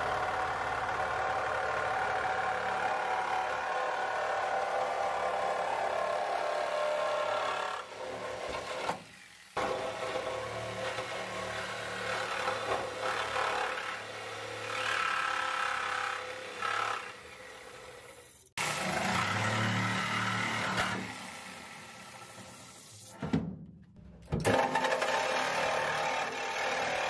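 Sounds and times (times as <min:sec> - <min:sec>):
reciprocating saw cutting sheet metal: 0:24.4 - 0:27.0.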